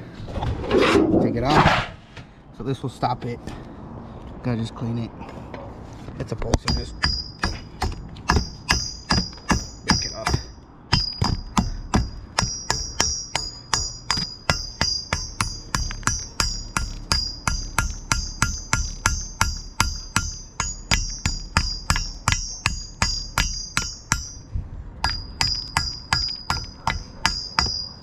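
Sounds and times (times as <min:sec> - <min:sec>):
hammer striking metal pipe: 0:06.6 - 0:28.0.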